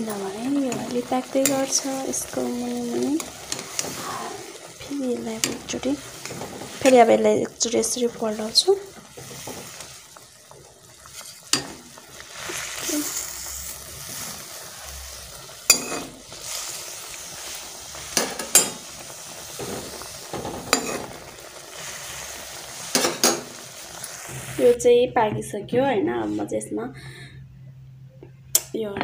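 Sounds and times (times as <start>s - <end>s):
noodles hissing cooking: 0.0s - 24.8s
ladle scraping steel pot: 20.4s - 21.2s.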